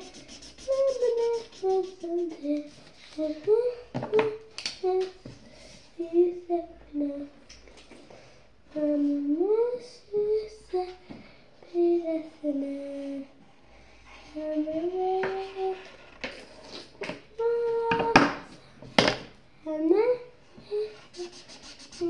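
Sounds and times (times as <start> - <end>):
girl singing softly: 0.0 - 7.5, 8.7 - 13.4, 14.2 - 16.0, 17.2 - 18.9, 19.6 - 22.0.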